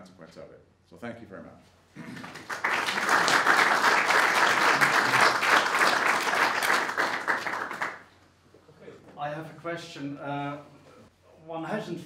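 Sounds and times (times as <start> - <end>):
audience applauding: 2.0 - 8.1.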